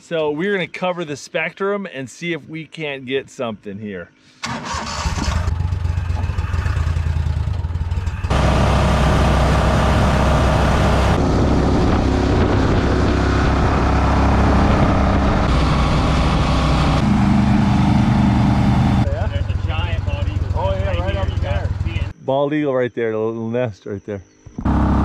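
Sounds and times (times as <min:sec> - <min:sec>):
boat motor running: 0:05.5 - 0:22.1, 0:24.6 - 0:25.0.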